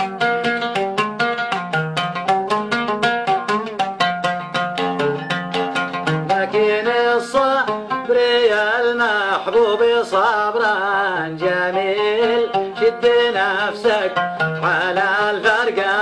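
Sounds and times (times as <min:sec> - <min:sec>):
plucked string instrument: 0:00.0 - 0:16.0
sliding melody line: 0:00.1 - 0:08.7.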